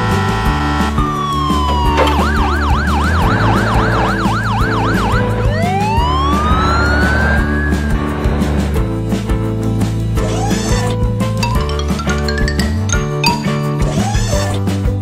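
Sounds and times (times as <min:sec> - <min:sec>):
background music: 0:00.0 - 0:15.0
cartoon siren wailing: 0:00.8 - 0:07.9.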